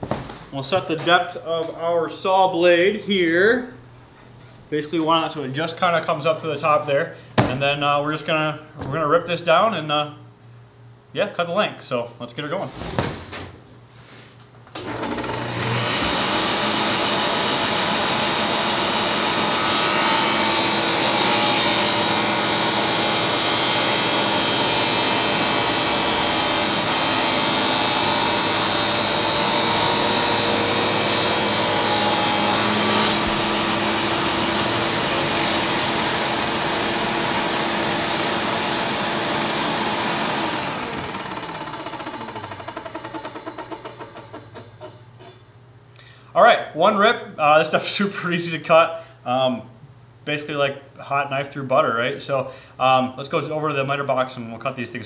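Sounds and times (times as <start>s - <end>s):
table saw running: 14.8s - 44.2s
saw blade cutting plastic: 19.5s - 33.8s.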